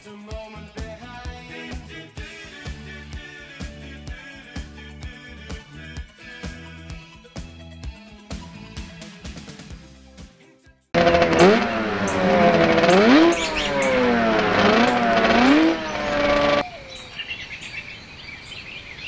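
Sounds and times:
motorcycle engine revving: 11.0 - 16.6
birds chirping: 11.4 - 19.0.

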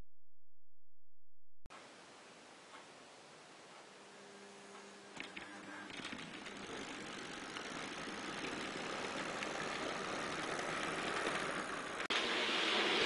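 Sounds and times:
model train running on track: 5.9 - 13.0.

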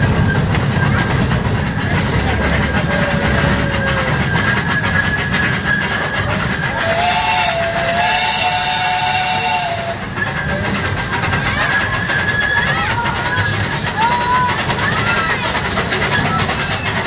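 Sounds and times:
rumble of train running: 0.0 - 17.0
train whistle blowing: 2.9 - 10.3.

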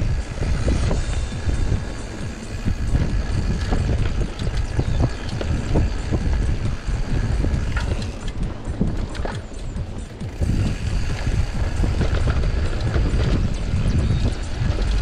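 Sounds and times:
bike rattling and knocking: 0.0 - 15.0
tyres rumbling on dirt: 0.0 - 15.0.

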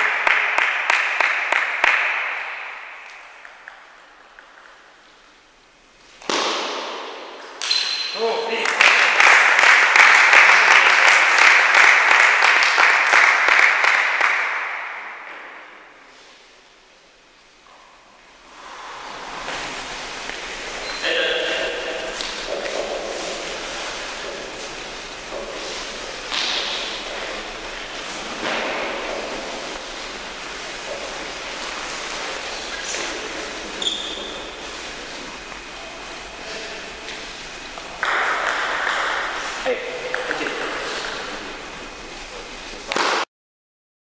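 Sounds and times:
spectators clapping: 0.0 - 4.6, 8.4 - 15.3, 21.4 - 33.7, 36.8 - 41.7
sports hall background hiss: 0.0 - 43.3.

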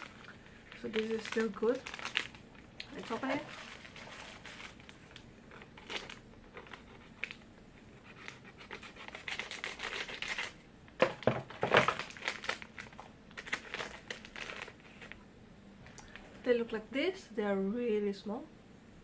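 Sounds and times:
snack wrapper tearing and crinkling: 0.0 - 7.4, 8.8 - 10.6, 11.7 - 15.1.

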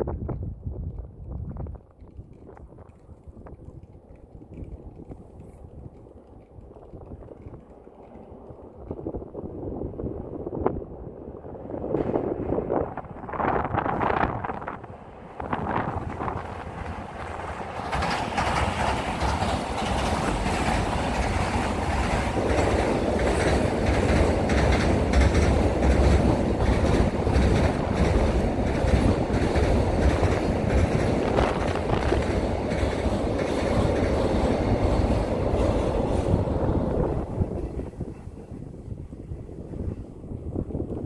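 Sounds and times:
low rumble of train: 0.0 - 41.0
train wheels clattering on rails: 1.8 - 9.3, 15.4 - 40.1.

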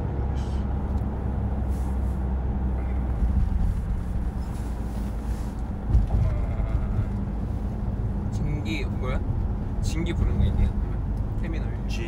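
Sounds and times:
road and engine rumble in cabin: 0.0 - 12.0
dull bump: 5.8 - 6.6.

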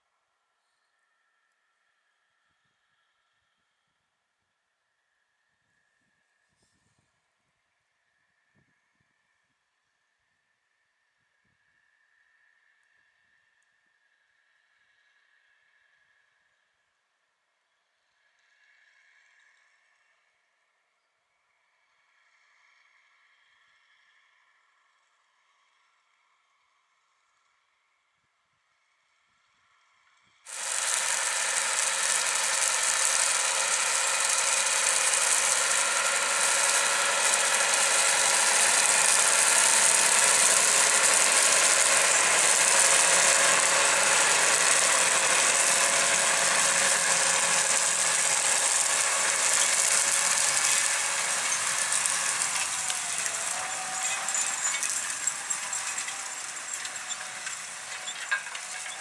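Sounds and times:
tractor engine under load: 30.5 - 59.0.

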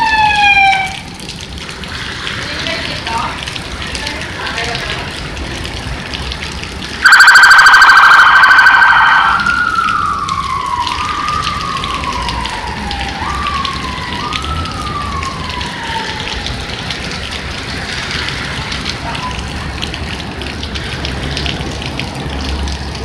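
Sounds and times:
police siren wailing: 0.0 - 1.2, 7.0 - 18.2
rain and wet tyres hissing: 0.0 - 23.0
buzzing horn blast: 7.0 - 8.9.

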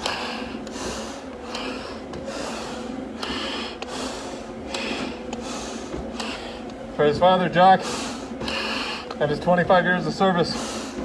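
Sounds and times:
breathing through a face mask: 0.0 - 6.8, 7.8 - 9.2, 10.5 - 11.0.

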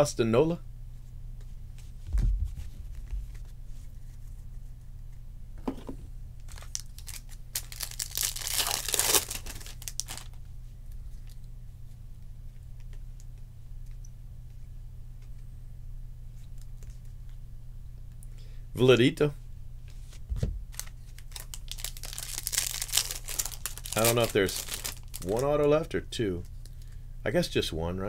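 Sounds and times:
low steady hum: 0.0 - 28.0
foil wrapper tearing: 6.5 - 10.4, 20.7 - 25.6
wrapper rustling: 6.5 - 10.4, 20.0 - 25.9.

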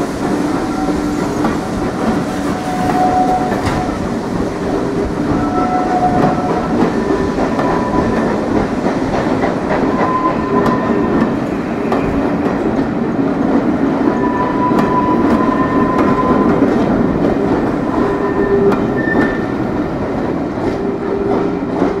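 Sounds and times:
train wheels rumbling and clicking: 0.0 - 22.0
wheel squeals: 17.8 - 19.5.

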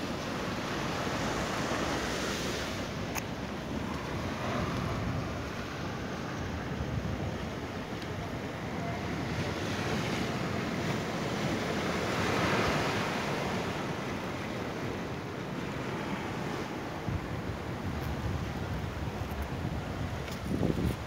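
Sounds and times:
surf washing on rocks: 0.0 - 21.0
wind buffeting microphone: 15.8 - 21.0.

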